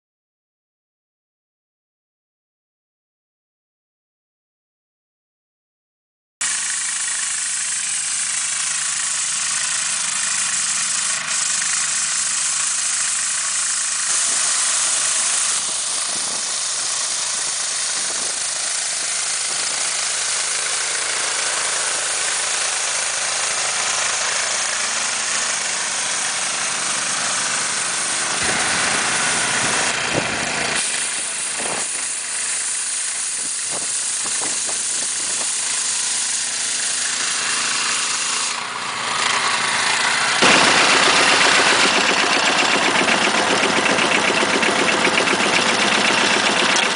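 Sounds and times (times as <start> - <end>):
small petrol engine revving high: 6.4 - 46.9
brush sweeping snow: 9.2 - 42.0.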